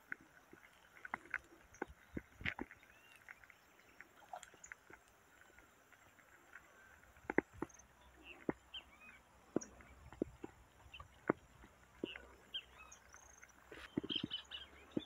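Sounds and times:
bird chirps: 7.6 - 15.0.

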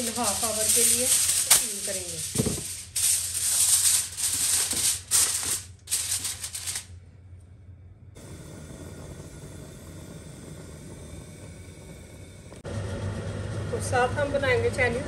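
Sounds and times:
aluminium foil crinkling: 0.0 - 7.0
low mechanical hum: 0.0 - 15.0.

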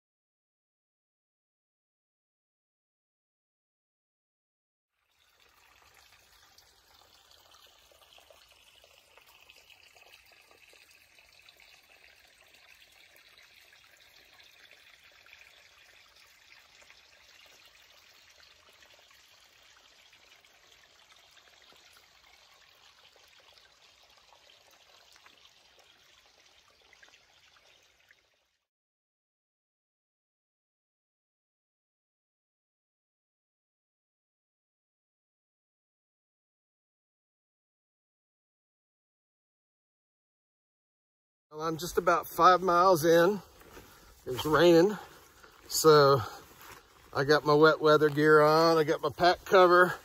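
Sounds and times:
faint water hiss: 5.1 - 28.6, 41.6 - 50.0.

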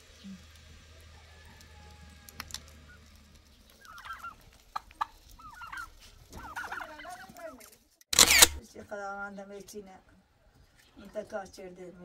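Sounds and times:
turkeys gobbling: 0.9 - 7.8.

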